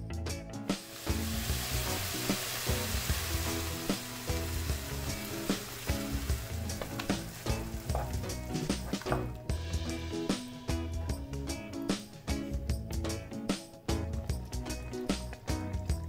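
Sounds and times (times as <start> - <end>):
background music: 0.0 - 16.0
meat sizzling in a pan: 0.7 - 8.9.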